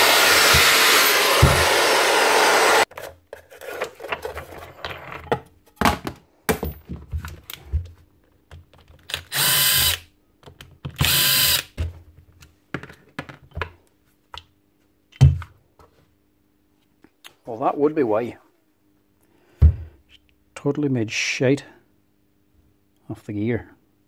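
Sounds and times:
power drill bursts: 0:00.0 - 0:02.9, 0:09.3 - 0:10.0, 0:11.0 - 0:11.7.

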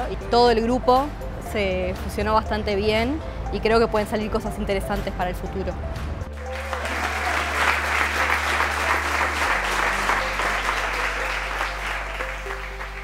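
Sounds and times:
background music with low notes: 0:00.0 - 0:13.0
audience applauding: 0:06.4 - 0:13.0.

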